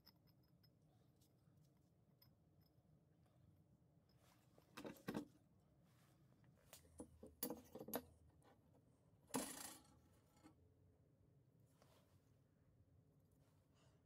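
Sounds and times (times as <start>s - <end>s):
metal knocks and clinks on wood: 7.0s - 8.1s.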